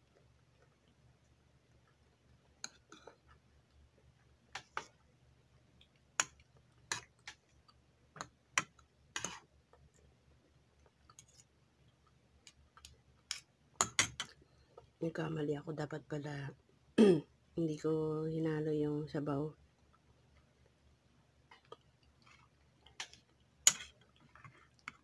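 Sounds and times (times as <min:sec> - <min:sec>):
chewing: 0:21.5 - 0:25.0.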